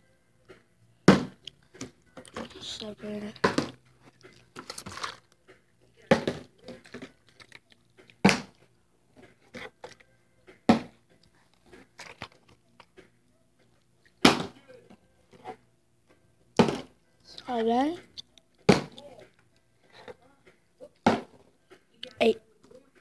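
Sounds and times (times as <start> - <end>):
plastic bottle hitting wooden table: 16.6 - 16.9, 18.7 - 19.0.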